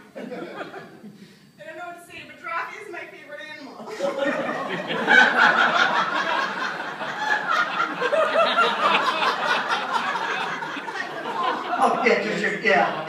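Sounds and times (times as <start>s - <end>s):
audience laughing: 0.0s - 1.2s, 3.9s - 13.0s.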